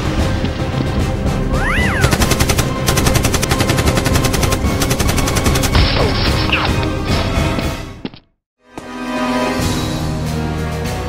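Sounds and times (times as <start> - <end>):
background music: 0.0 - 11.0
rapid automatic gunfire: 2.1 - 5.9.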